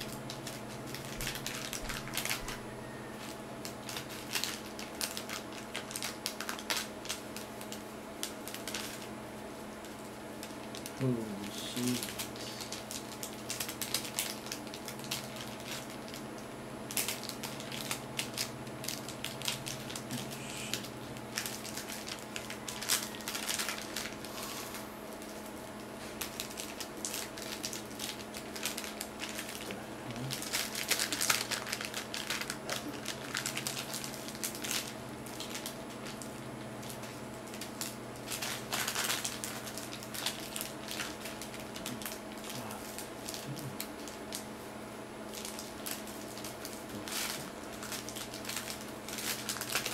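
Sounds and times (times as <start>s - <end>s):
plastic bags crinkling: 0.0s - 44.6s, 45.2s - 49.9s.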